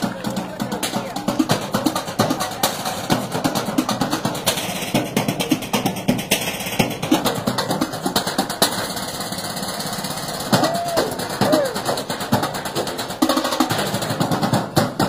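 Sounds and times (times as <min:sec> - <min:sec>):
drumming on metal trash cans: 0:00.0 - 0:15.0.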